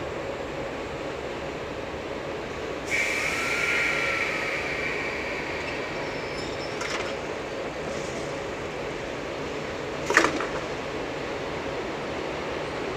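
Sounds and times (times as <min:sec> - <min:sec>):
train equipment hum: 0:00.0 - 0:12.9
compressed air hissing: 0:02.9 - 0:09.0.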